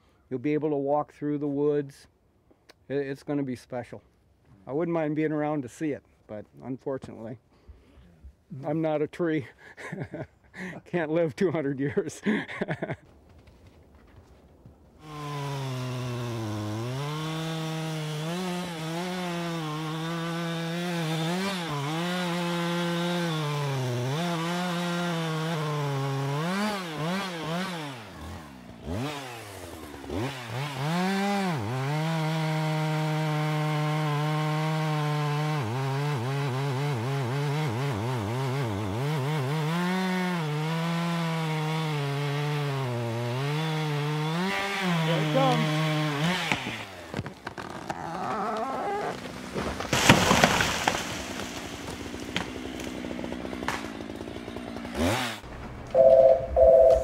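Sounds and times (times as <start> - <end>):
chainsaw cutting tree: 15.0 - 56.9.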